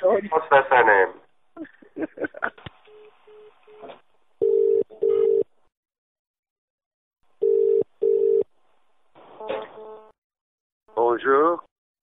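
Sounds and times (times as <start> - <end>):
telephone ringing tone: 4.4 - 5.5, 7.4 - 8.5.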